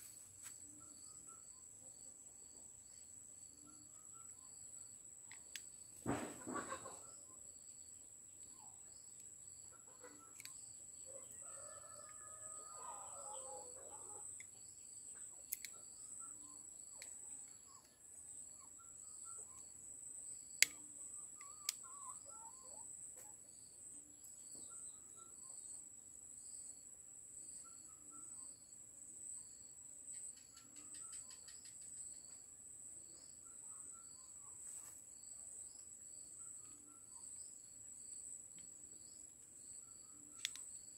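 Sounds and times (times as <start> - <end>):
pulsing insect chirp: 23.5 - 40.9
sharp clicks: 40.4 - 40.7.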